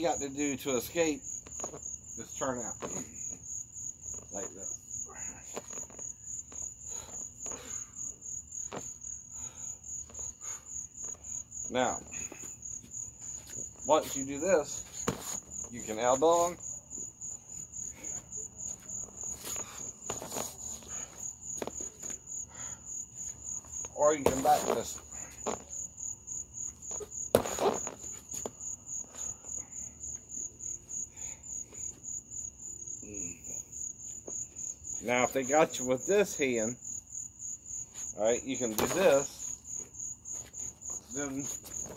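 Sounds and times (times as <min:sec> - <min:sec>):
crickets chirping: 0:00.0 - 0:41.9
sharp smack: 0:27.3 - 0:27.8.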